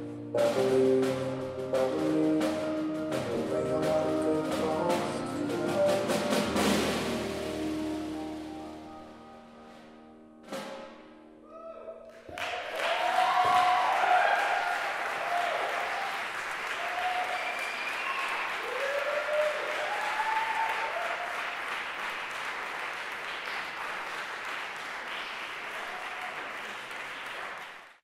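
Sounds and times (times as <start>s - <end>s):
audience whooping and shouting: 11.4s - 21.6s
audience applauding: 12.0s - 28.0s.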